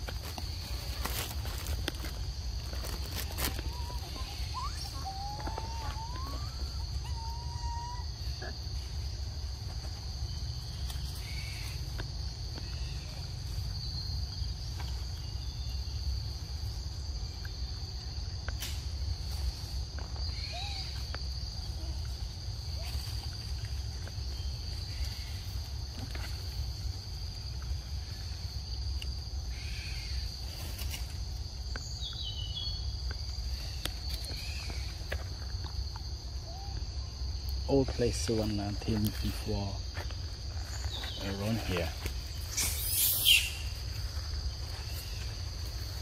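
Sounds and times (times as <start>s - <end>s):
high-pitched insect drone: 0.0s - 46.0s
short whistling calls: 3.7s - 8.0s, 42.5s - 43.7s.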